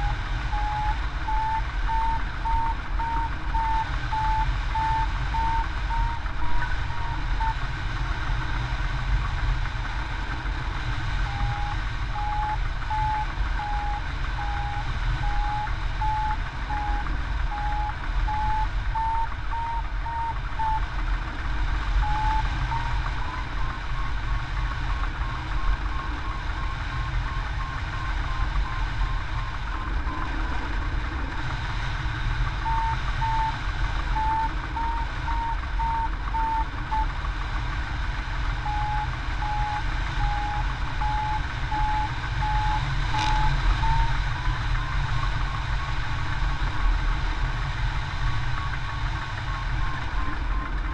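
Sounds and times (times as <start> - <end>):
variometer short beeps: 0.0 - 7.7, 11.2 - 20.8, 22.0 - 24.2, 32.6 - 37.2, 38.5 - 45.2.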